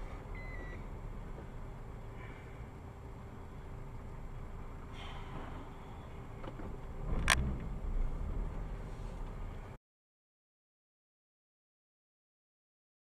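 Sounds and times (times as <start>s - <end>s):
vehicle road and engine rumble: 0.0s - 9.8s.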